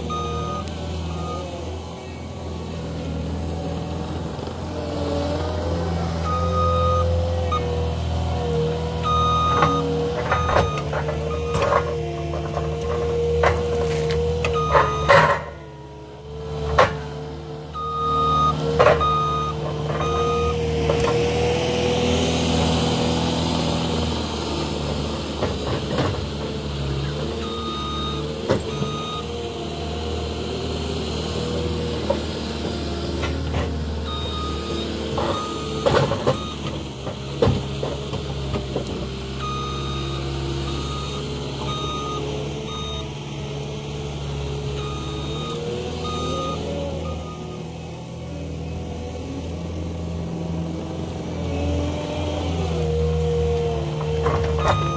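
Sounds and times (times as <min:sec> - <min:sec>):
diesel engine running under load: 0:00.0 - 0:54.9
backup alarm beeping: 0:00.1 - 0:01.4, 0:06.3 - 0:07.7, 0:09.0 - 0:11.7, 0:17.8 - 0:20.6, 0:34.1 - 0:36.7, 0:39.4 - 0:43.1, 0:44.8 - 0:47.6, 0:54.6 - 0:54.9
knocks and clanks on logs: 0:09.6 - 0:15.6, 0:35.1 - 0:39.1.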